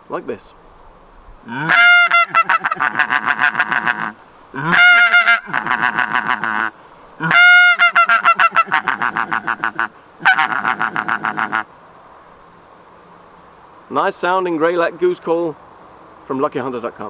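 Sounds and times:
goose call honking: 1.5s - 11.7s.

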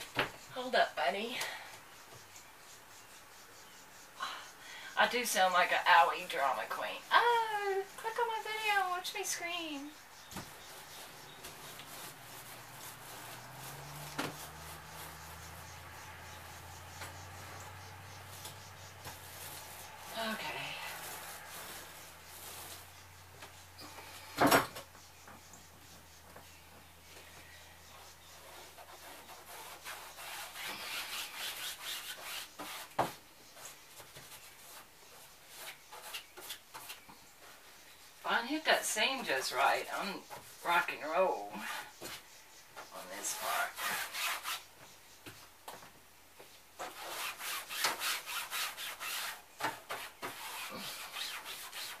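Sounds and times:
paint roller crackling on wall: 6.2s - 23.6s, 28.4s - 37.6s, 43.0s - 44.6s, 46.8s - 52.0s.

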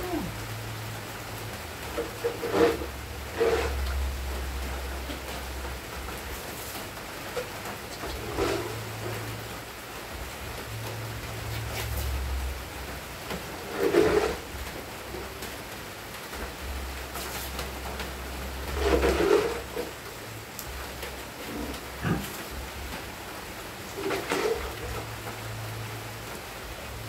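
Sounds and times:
steady hiss: 0.0s - 27.0s
piglets grunting: 21.5s - 22.4s.

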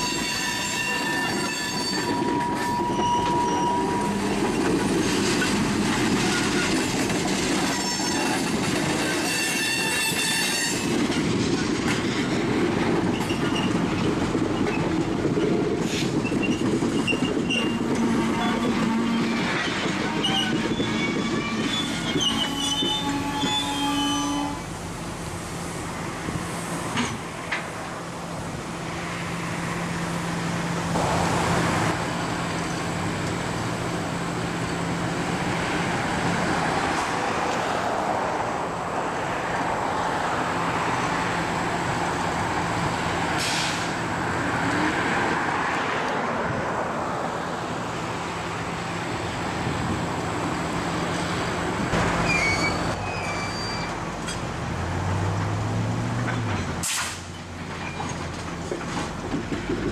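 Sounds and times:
high wheel squeaks: 0.0s - 11.0s, 13.1s - 24.7s, 52.0s - 54.4s, 56.3s - 59.0s
steel wheels rolling on rail: 0.0s - 59.9s.

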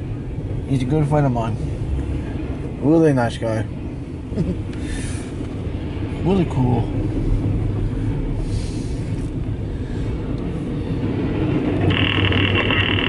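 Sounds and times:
train wheels rumbling on rail: 0.0s - 13.0s
high steady squeal: 10.7s - 13.0s.

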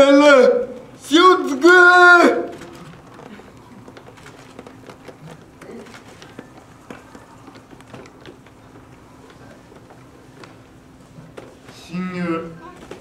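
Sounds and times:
small rustles: 2.5s - 11.9s.

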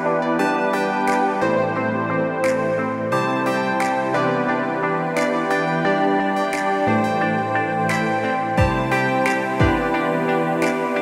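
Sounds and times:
sustained chord music: 0.0s - 11.0s.

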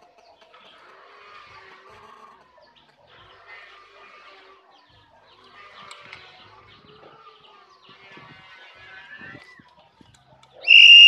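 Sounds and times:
bird whistled call: 10.6s - 11.0s.

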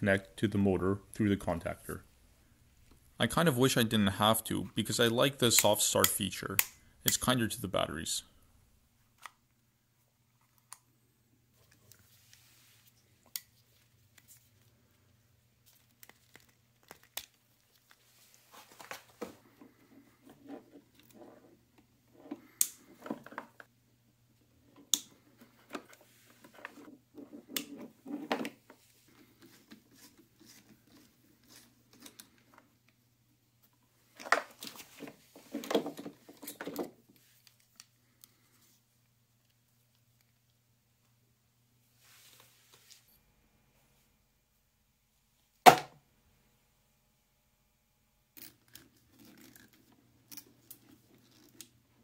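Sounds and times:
rustling of wires and plastic: 11.5s - 21.7s.

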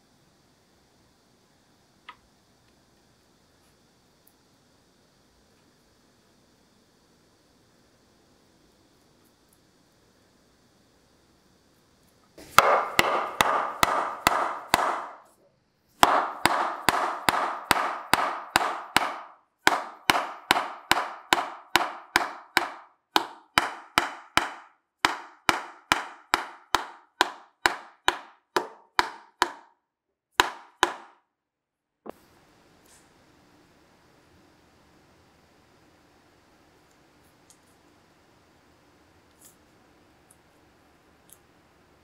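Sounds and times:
mallet striking wood: 12.4s - 15.3s, 16.0s - 29.7s, 30.4s - 31.2s.

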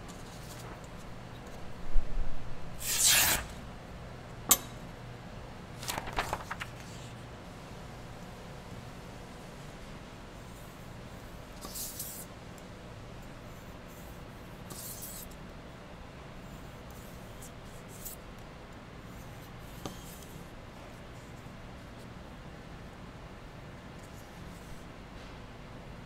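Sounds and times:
knife slicing through paper: 2.8s - 3.5s.

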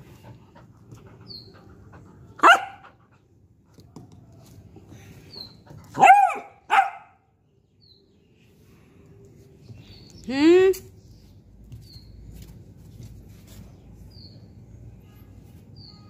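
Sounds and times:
puppy barking: 2.4s - 3.0s, 5.9s - 7.2s.

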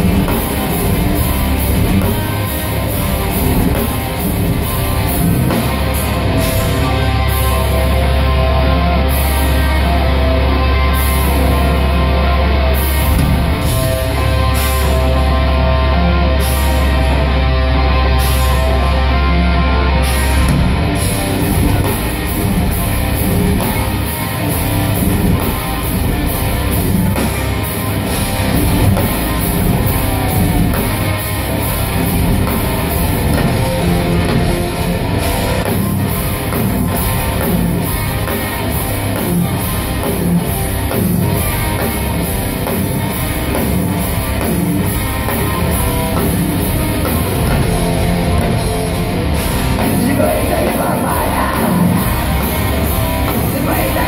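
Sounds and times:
metal band playing live: 0.0s - 54.0s.

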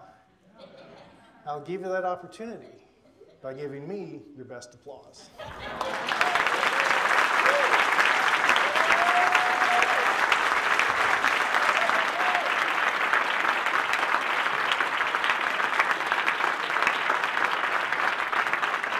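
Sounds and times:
audience applauding: 5.4s - 18.9s.

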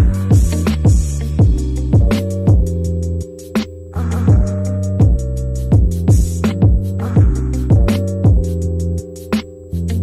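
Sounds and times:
kick drum beat: 0.0s - 2.8s, 4.3s - 8.6s
hi-hat ticks: 0.0s - 10.0s
sustained bass and chords: 0.0s - 10.0s.

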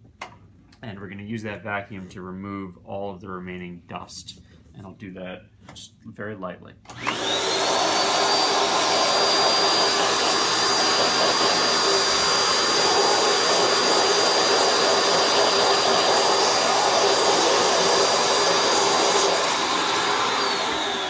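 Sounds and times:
vacuum cleaner motor whine: 6.9s - 21.0s.

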